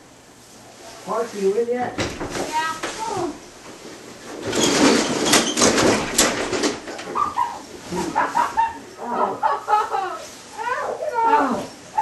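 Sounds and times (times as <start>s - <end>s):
bodies tumbling onto floor: 2.0s - 8.7s
sleeping bags rustling: 2.3s - 8.8s.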